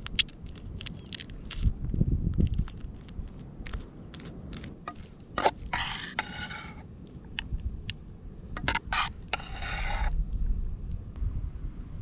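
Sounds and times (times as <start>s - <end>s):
low rumble: 10.1s - 12.0s.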